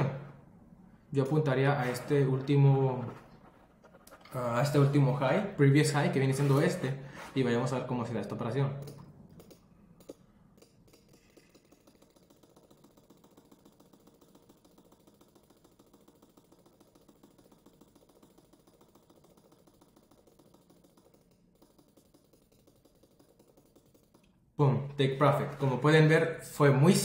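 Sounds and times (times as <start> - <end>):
computer mouse click: 8.8 - 24.4.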